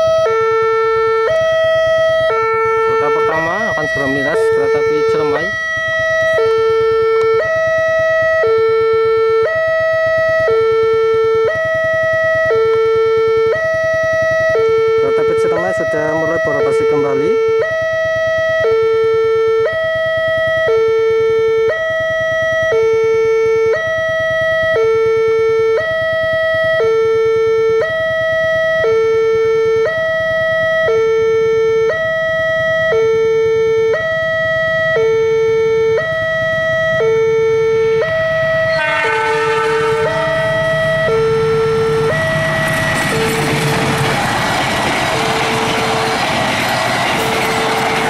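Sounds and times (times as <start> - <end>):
level crossing two-tone alarm: 0.0 - 48.0
approaching train: 38.4 - 48.0.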